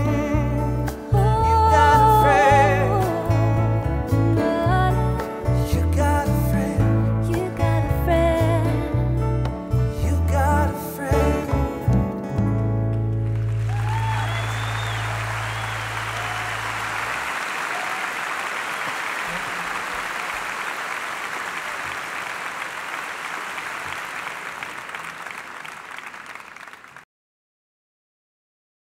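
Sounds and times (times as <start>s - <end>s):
audience applause: 13.1s - 27.0s.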